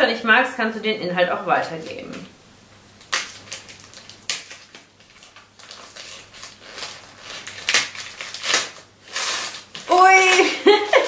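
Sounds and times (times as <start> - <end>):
wrapping paper rustling: 3.0 - 11.0.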